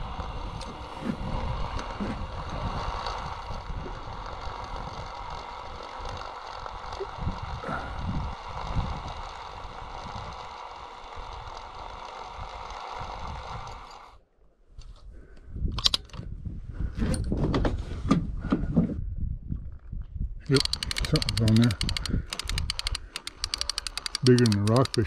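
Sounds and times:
fishing reel spool whirring: 0:00.0 - 0:14.2, 0:20.5 - 0:25.0
clicks and knocks of handling: 0:20.5 - 0:25.0.

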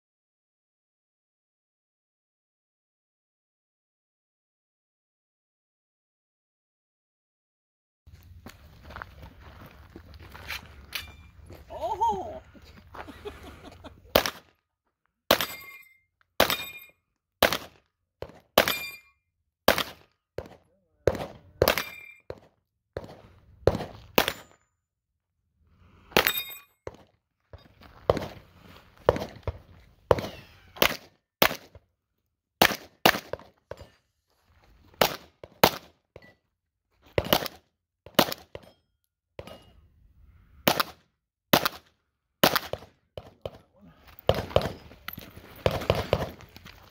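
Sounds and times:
pistol shots: 0:14.1 - 0:14.5, 0:15.3 - 0:15.7, 0:16.4 - 0:16.8, 0:17.4 - 0:19.0, 0:19.7 - 0:24.5, 0:29.1 - 0:31.8, 0:32.6 - 0:33.5, 0:35.0 - 0:35.9, 0:37.2 - 0:38.6, 0:40.7 - 0:43.6, 0:44.3 - 0:45.0, 0:45.6 - 0:46.4.

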